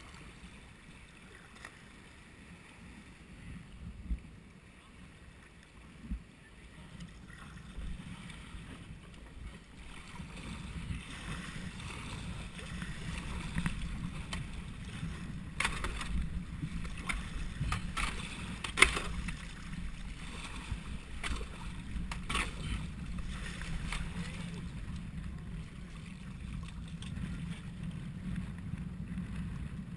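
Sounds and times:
kayak paddle strokes splashing: 0:04.7 - 0:28.6
water sloshing against rocks: 0:06.7 - 0:27.7.

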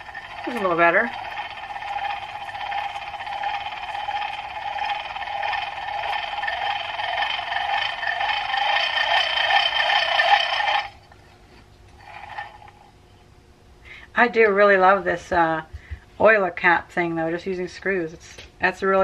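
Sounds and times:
hand-crank grinder gears whining: 0:00.0 - 0:12.9.

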